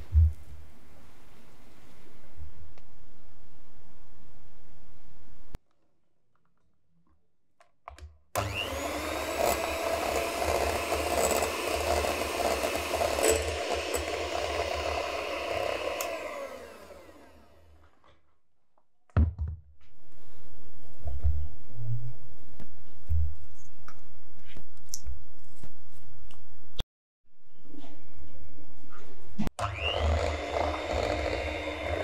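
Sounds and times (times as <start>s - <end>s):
electric hand mixer whirring: 8.4s - 17.8s, 29.6s - 32.0s.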